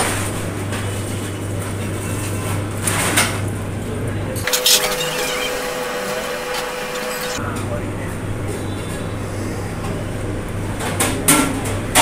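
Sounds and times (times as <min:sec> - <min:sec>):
faint voices: 0:03.9 - 0:09.9.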